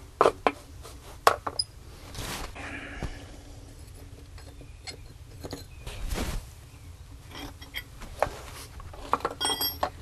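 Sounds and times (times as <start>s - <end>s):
metallic clink: 9.4s - 10.0s.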